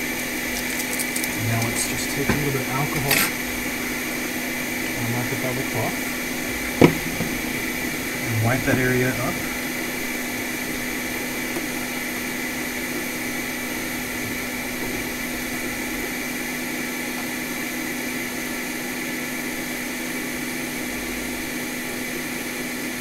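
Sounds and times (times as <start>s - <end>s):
electric fan whirring: 0.0s - 23.0s.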